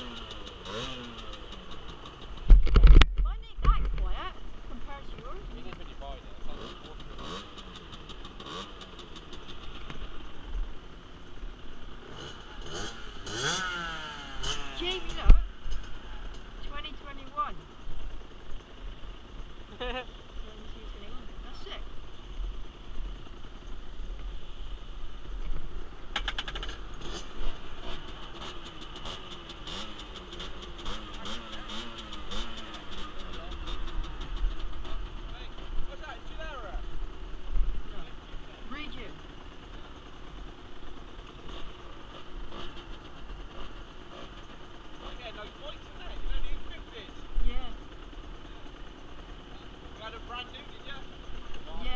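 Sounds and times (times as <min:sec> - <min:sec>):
rapid ticking: 0:00.0 - 0:03.0, 0:03.6 - 0:24.3
motorbike engine idling: 0:00.0 - 0:51.9.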